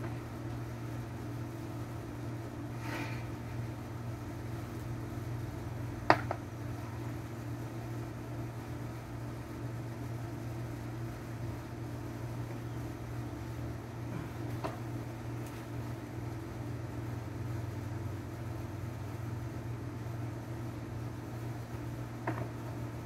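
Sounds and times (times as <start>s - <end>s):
low mechanical hum: 0.0s - 23.0s.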